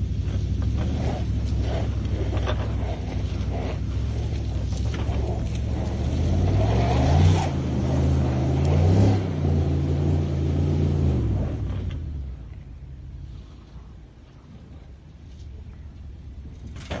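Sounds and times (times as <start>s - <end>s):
truck engine revving hard: 0.0s - 12.2s.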